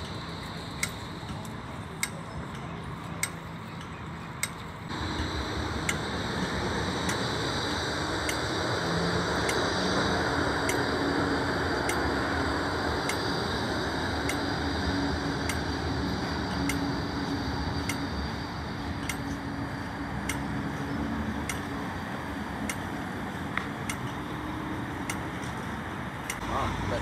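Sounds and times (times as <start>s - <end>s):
road traffic: 0.0s - 27.0s
trams humming: 0.0s - 27.0s.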